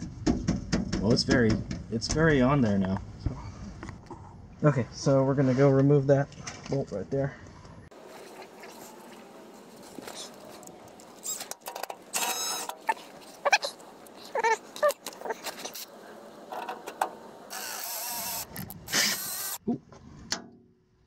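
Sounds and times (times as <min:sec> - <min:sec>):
metal clicks and squeaks: 0:10.2 - 0:15.9
cordless drill running: 0:17.5 - 0:19.6.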